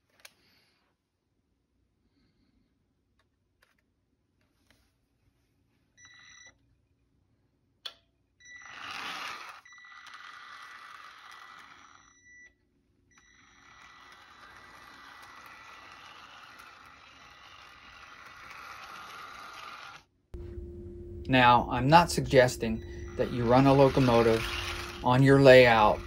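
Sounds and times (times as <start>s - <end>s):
toy streetcar motor whining: 8.5s - 12.2s, 13.2s - 20.1s, 22.9s - 26.0s.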